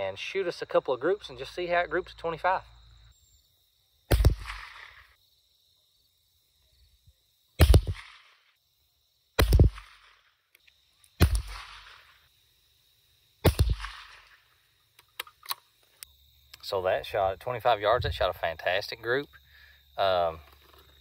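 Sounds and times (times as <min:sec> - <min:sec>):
rifle shots cracking: 0:04.1 - 0:05.1, 0:07.6 - 0:08.3, 0:09.4 - 0:10.2, 0:11.2 - 0:12.2, 0:13.4 - 0:14.4
rifle bolt clicks: 0:15.0 - 0:15.6.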